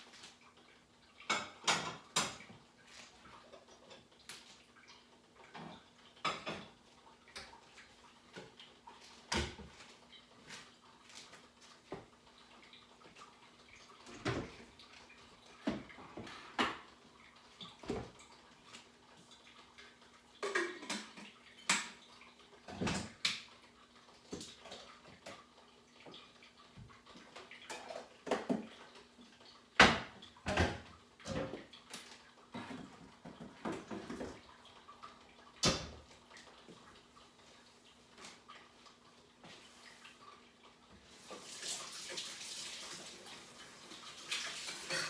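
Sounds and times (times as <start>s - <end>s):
dishes clattering on a counter: 1.2s - 2.6s, 5.5s - 7.5s, 15.6s - 16.9s, 20.4s - 22.0s, 27.7s - 28.7s, 29.8s - 31.7s, 44.6s - 45.0s.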